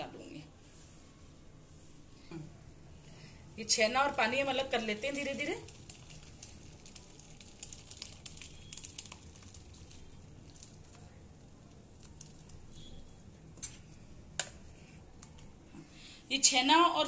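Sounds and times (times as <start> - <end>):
liquid pattering through cloth: 4.0 - 13.8.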